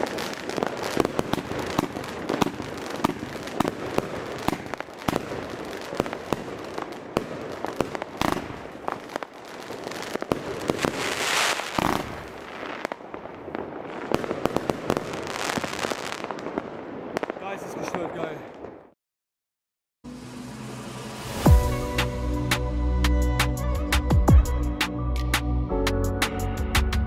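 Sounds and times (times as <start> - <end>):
firework shots and bursts: 0.0 - 18.9
firework crackling: 0.0 - 19.0, 20.1 - 22.7.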